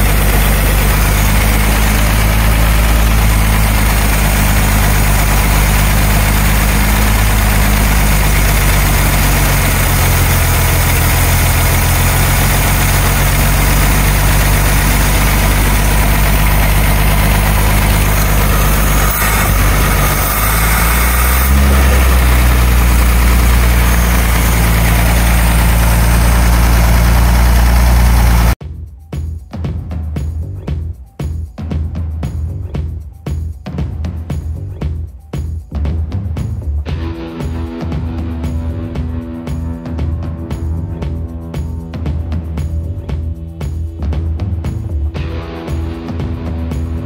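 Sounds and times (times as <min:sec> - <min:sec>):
truck engine idling: 0:00.0 - 0:28.6.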